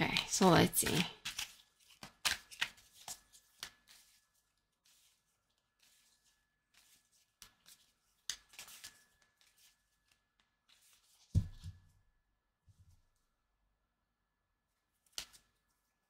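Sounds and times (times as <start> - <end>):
cards shuffling: 0.8 - 5.2, 5.8 - 11.6.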